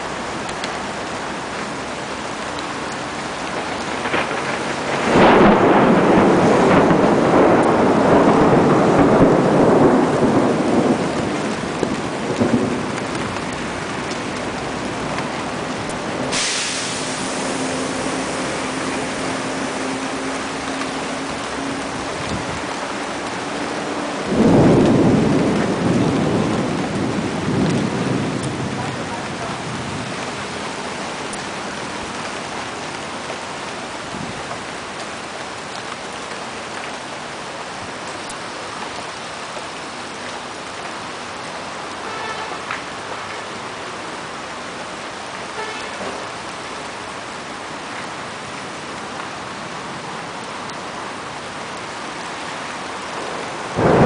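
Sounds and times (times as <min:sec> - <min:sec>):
steady rain: 0:00.0 - 0:54.0
thunder rolling: 0:03.3 - 0:32.6, 0:53.0 - 0:54.0.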